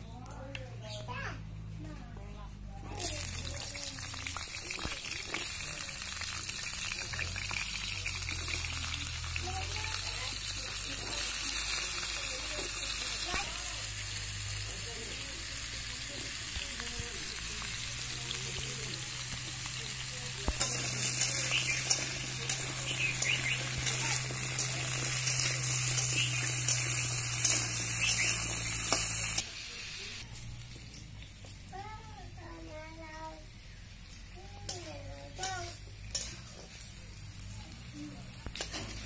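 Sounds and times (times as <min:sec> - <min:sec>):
vegetables sizzling in hot oil: 0:02.8 - 0:39.0
metal spatula scraping a wok: 0:20.5 - 0:29.2, 0:35.4 - 0:37.0, 0:38.5 - 0:39.0.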